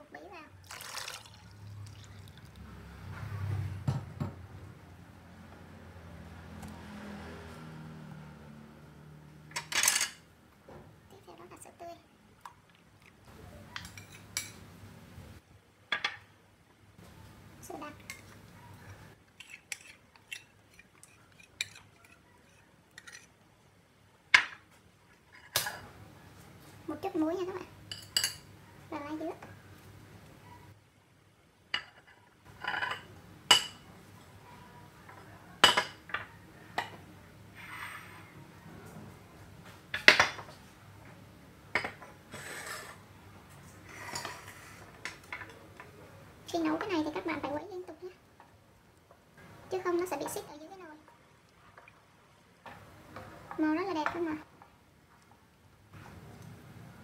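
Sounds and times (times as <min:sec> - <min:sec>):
kitchenware clinking: 0:09.5 - 0:10.3, 0:13.7 - 0:14.7, 0:18.0 - 0:23.3, 0:24.4 - 0:25.9, 0:27.8 - 0:28.5, 0:31.7 - 0:33.9, 0:35.1 - 0:37.0.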